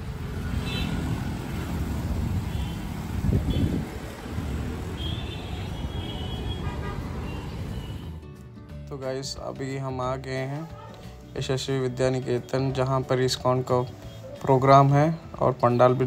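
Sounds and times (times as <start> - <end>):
road traffic rumble: 0.0 - 8.8.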